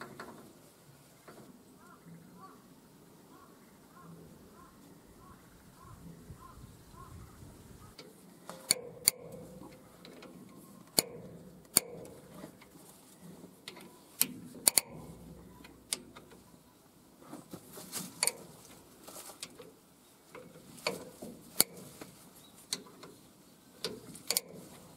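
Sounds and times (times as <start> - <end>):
socket wrench metallic clicks: 8.6 - 9.4, 10.9 - 12.1, 14.2 - 15.0, 24.3 - 24.6.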